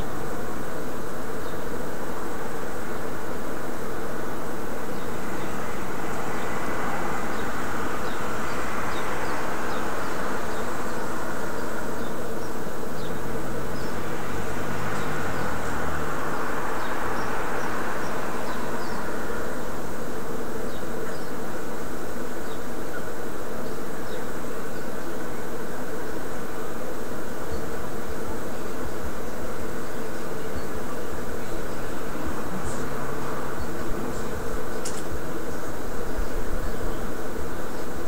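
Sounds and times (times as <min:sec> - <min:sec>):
loud buzzing hum: 0:00.0 - 0:38.0
car driving past: 0:05.0 - 0:11.4, 0:13.0 - 0:19.8, 0:31.7 - 0:35.2.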